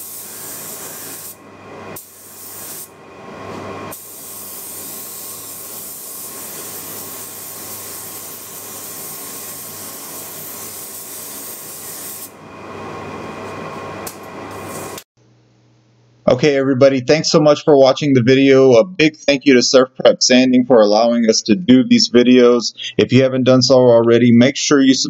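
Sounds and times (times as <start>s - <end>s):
spray gun hissing: 0.0s - 1.4s, 2.0s - 2.9s, 3.9s - 12.4s.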